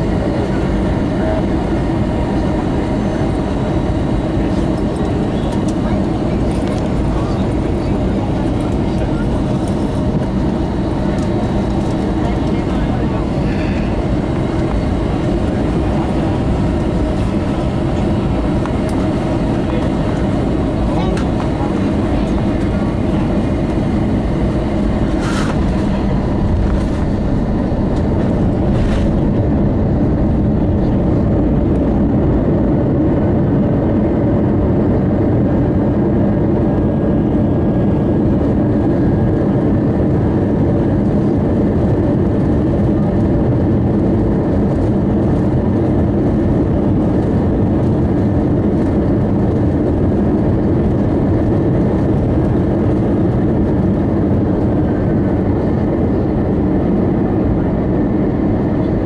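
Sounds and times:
aircraft engines running: 0.0s - 59.0s
rumble of aircraft rolling: 0.0s - 59.0s.

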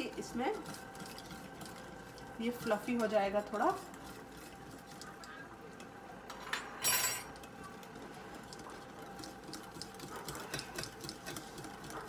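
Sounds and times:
whisk ticking against glass bowl: 0.0s - 6.0s, 7.3s - 12.0s
whisk clinking on glass: 6.3s - 7.5s.

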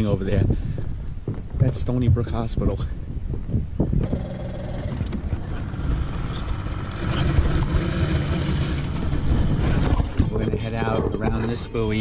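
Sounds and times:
outboard motor starting and running: 4.0s - 10.6s.

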